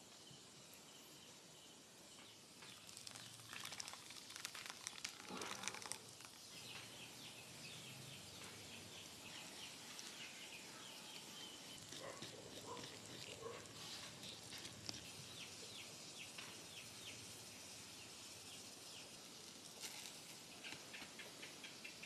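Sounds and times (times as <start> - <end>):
crackling: 2.6 - 7.3, 8.4 - 17.2, 18.4 - 21.6.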